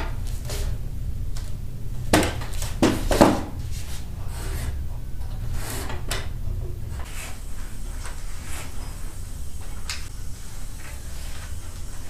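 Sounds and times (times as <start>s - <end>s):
wooden stepladder knocks and scrapes: 2.1s - 4.8s.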